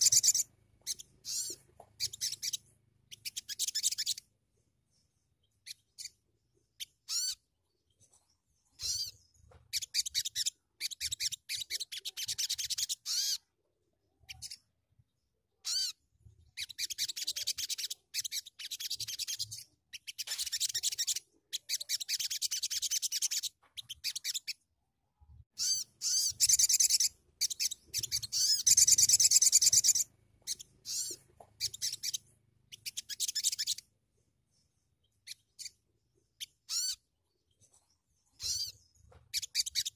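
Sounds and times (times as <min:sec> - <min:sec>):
bird twittering trills: 0:00.0 - 0:04.3, 0:04.9 - 0:13.4, 0:25.5 - 0:33.9, 0:34.5 - 0:39.9
bird sharp chirps: 0:00.0 - 0:13.5, 0:15.6 - 0:24.6, 0:25.5 - 0:33.9, 0:34.5 - 0:39.9.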